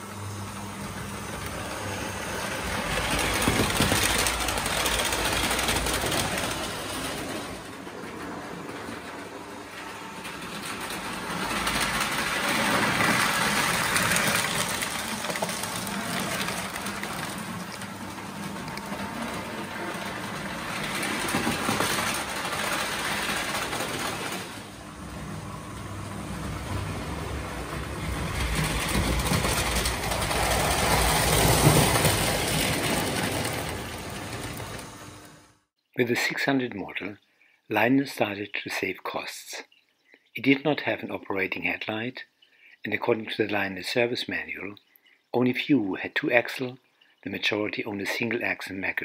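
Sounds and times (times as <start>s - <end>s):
model train running on track: 0.0s - 35.5s.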